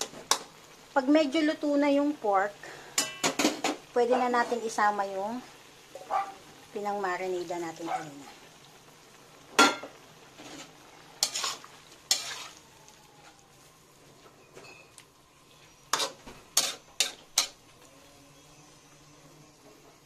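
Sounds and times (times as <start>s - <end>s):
meat frying: 0.0s - 20.0s
metal spatula scraping a wok: 10.3s - 12.6s, 15.7s - 17.6s.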